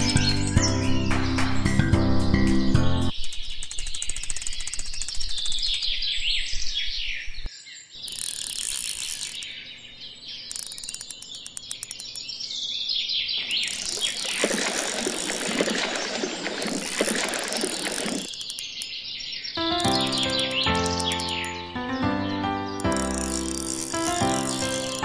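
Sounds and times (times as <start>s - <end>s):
songbirds chirping and trilling: 0.0s - 25.0s.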